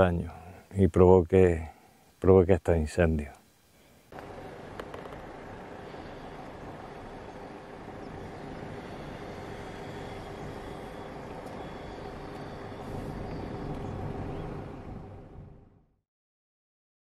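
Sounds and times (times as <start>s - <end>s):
car engine and road noise: 4.1s - 16.0s.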